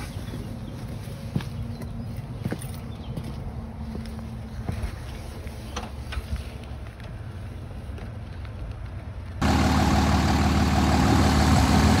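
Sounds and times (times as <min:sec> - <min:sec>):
diesel engine idling: 0:09.4 - 0:12.0
engine hiss: 0:09.4 - 0:12.0.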